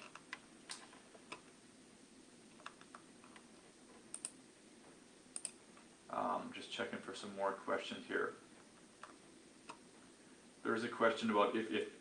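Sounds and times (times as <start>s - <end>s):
faint computer clicks: 4.1s - 4.4s, 5.3s - 5.9s.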